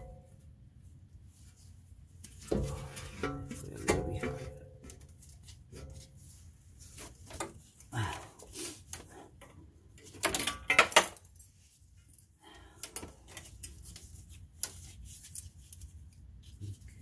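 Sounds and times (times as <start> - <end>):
metal tools clinking and knocking: 10.0 - 11.5, 12.8 - 13.8.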